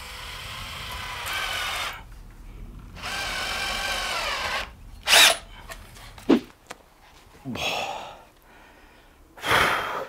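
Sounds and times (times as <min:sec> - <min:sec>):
cordless drill driving screw: 0:03.0 - 0:05.5.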